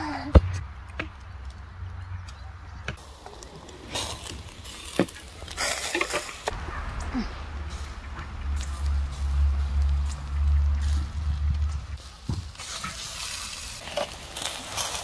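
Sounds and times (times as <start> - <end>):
meat sizzling on a grill: 3.1 - 6.5, 12.0 - 15.0
low rumble: 6.4 - 12.0.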